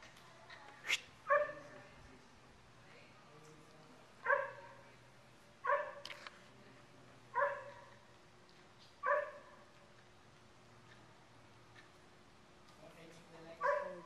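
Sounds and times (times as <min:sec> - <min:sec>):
dog barking: 0:01.3 - 0:01.7, 0:04.2 - 0:04.8, 0:05.6 - 0:06.0, 0:07.4 - 0:08.0, 0:09.0 - 0:09.6, 0:13.6 - 0:14.0.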